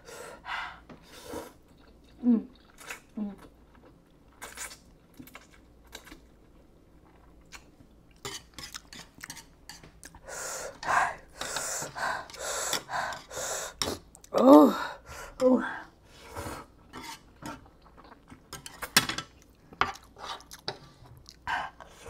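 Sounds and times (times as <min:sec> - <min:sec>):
noodles slurped and chewed: 0:01.5 - 0:09.4
person panting: 0:10.2 - 0:13.8.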